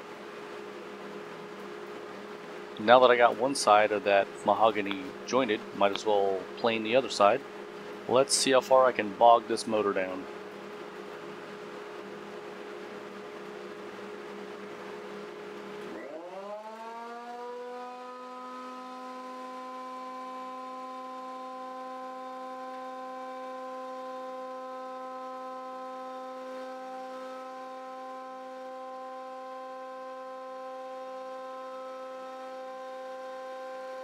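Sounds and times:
planer planing wood: 15.9s - 34.0s.

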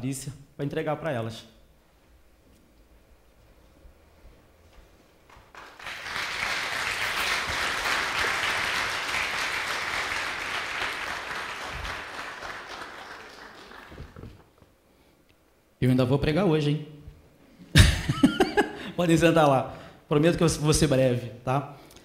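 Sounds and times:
congregation applauding: 5.3s - 14.6s.

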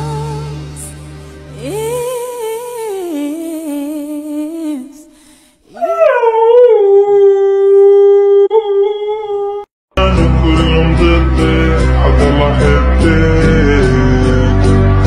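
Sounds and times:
dog howling: 5.7s - 9.7s.

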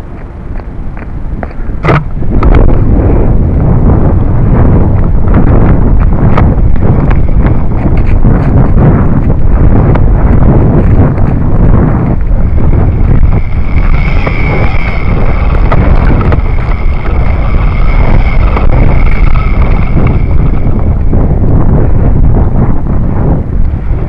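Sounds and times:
steady high whine: 0.0s - 24.0s
wind rumble on microphone: 0.0s - 24.0s.

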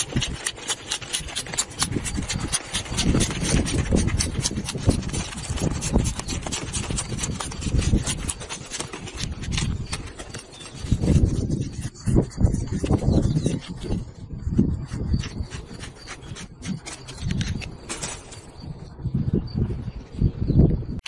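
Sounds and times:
knife cutting crackling bracts: 0.0s - 12.2s.

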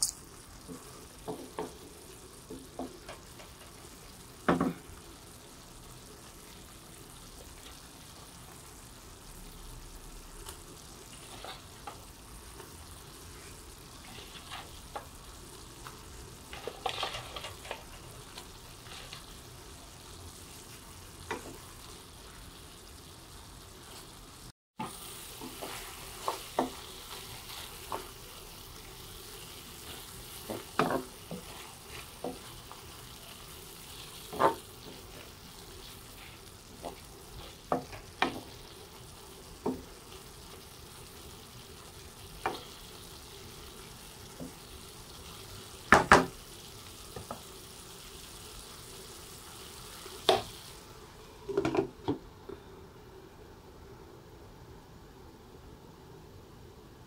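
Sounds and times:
food sizzling in a frying pan: 0.0s - 52.0s
wooden spatula scraping a pan: 11.0s - 12.0s, 13.2s - 15.1s, 16.0s - 19.4s, 24.8s - 38.7s.

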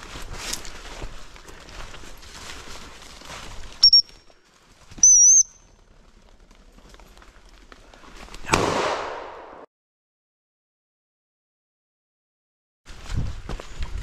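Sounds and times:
footsteps in dry leaves: 0.0s - 5.0s
dog whistle blasts: 3.8s - 4.1s, 5.0s - 5.5s.

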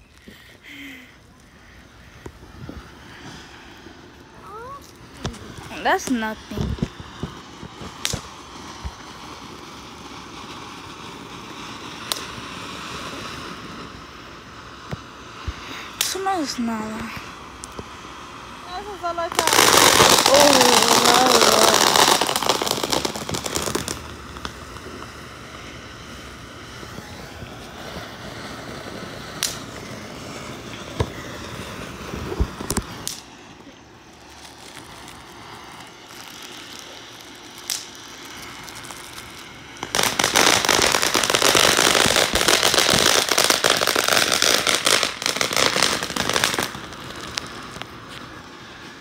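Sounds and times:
firework fountains hissing and crackling: 0.0s - 49.0s
sharp pops: 4.8s - 9.1s, 29.4s - 29.7s, 32.2s - 33.3s.

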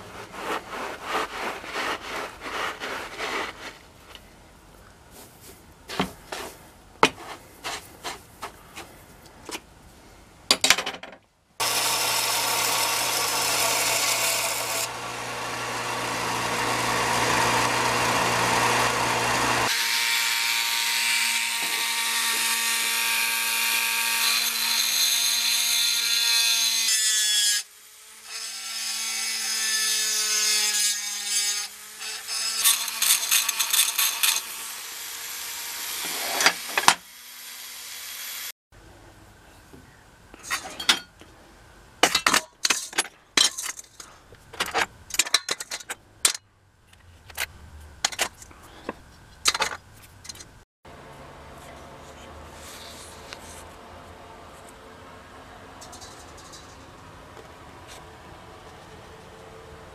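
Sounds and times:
rotary tool grinding metal: 11.6s - 38.5s.

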